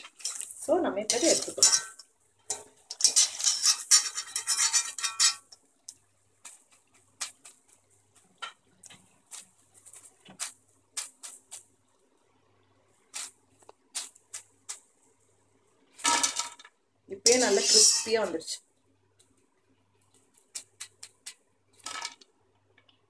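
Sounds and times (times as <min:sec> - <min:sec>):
wire strainer scraping metal pan: 0:00.0 - 0:05.6, 0:17.2 - 0:18.3.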